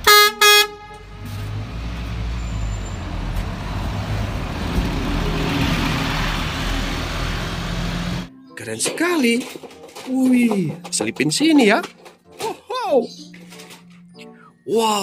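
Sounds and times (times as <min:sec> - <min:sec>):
short loud horn toots: 0:00.0 - 0:01.5
bus engine rumble: 0:00.0 - 0:08.3
road noise: 0:00.0 - 0:08.4.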